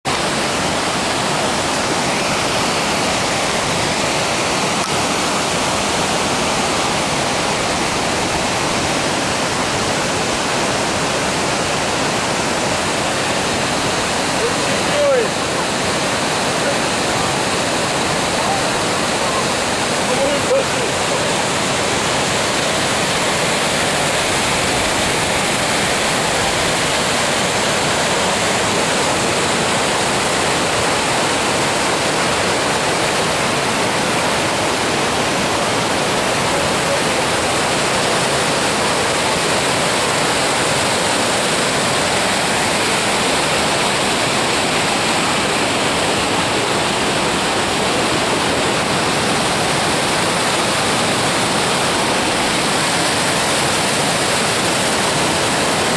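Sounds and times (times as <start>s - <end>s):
water rushing over rocks: 0.0s - 55.9s.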